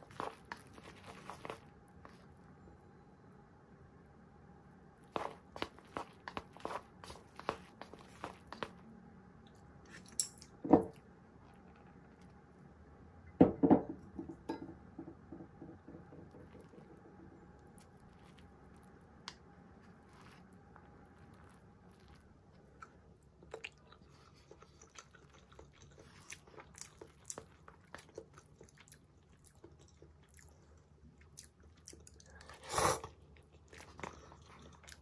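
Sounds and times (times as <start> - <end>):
chopsticks stirring noodles: 0.0 - 2.3.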